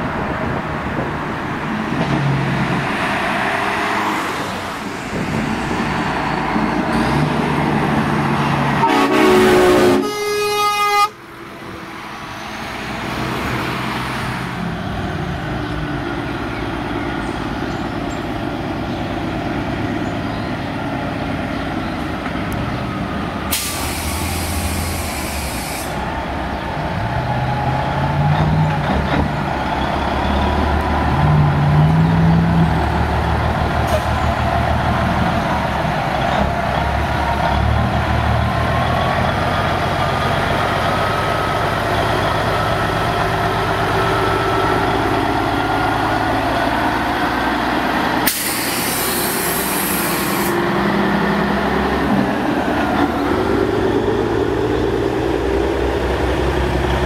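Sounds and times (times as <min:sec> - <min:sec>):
diesel truck engine pulling away: 0:00.0 - 0:09.8, 0:11.3 - 0:57.0
air brakes click and hiss: 0:23.5 - 0:26.0, 0:48.2 - 0:50.6.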